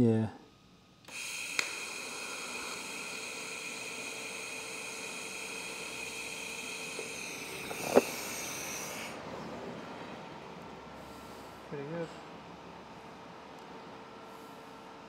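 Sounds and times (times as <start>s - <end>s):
welding arc hissing and buzzing: 1.1s - 9.2s.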